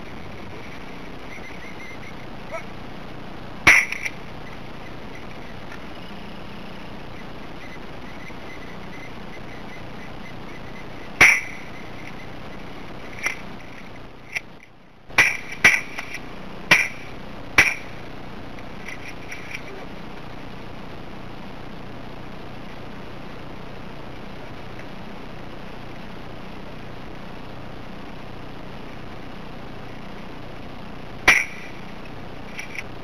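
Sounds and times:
sharp bangs: 3.6 - 5.9, 7.1 - 19.7, 31.2 - 31.9.

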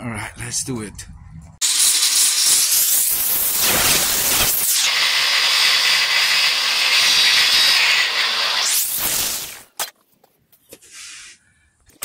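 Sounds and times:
welding arc sizzling: 1.6 - 9.8.

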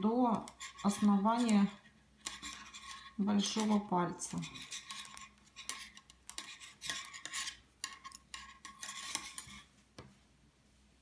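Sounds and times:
metal knitting needles clicking: 0.3 - 9.5.

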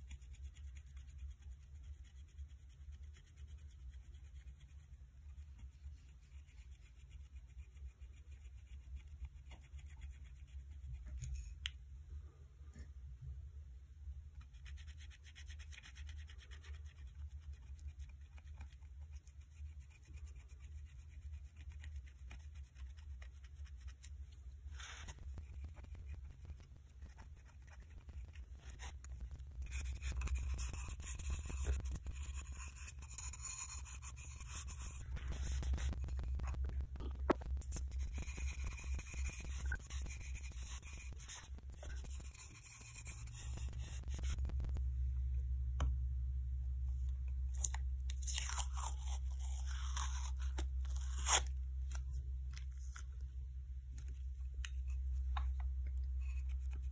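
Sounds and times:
steady low hum: 0.0 - 56.9
spatula scratching ceramic bowl: 24.9 - 36.6, 37.5 - 44.8.

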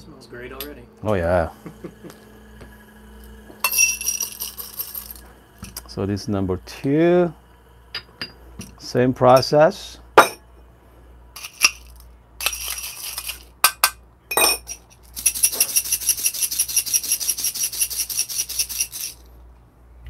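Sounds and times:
coffee beans and glass clinking: 3.6 - 6.0, 11.4 - 19.2.

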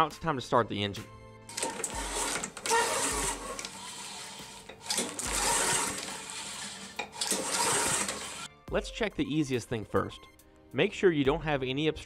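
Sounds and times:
mower engine cranking on recoil starter: 1.5 - 8.5.

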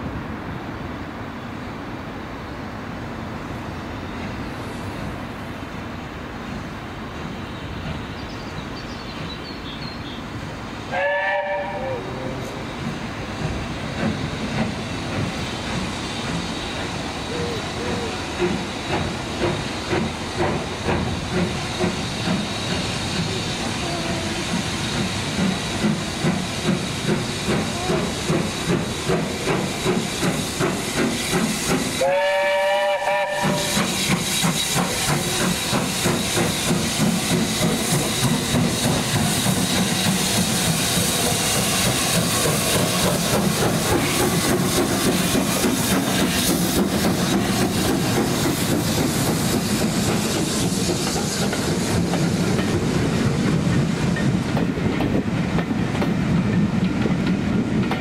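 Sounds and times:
steam hissing: 1.6 - 58.0
steam locomotive exhaust beat: 4.1 - 58.0
train whistle: 10.9 - 12.4, 32.0 - 33.9.

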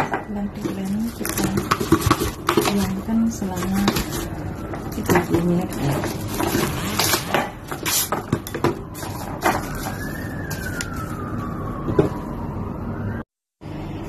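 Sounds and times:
faint siren wailing: 0.0 - 14.0
cling film crackling and tearing: 8.8 - 11.3.

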